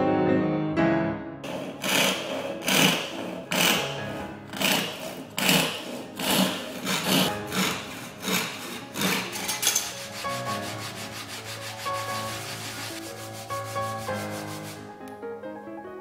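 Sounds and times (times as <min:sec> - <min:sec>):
soft piano music: 0:00.0 - 0:01.5, 0:03.4 - 0:04.6, 0:06.0 - 0:16.0
wood rubbing on sandpaper: 0:01.4 - 0:15.0.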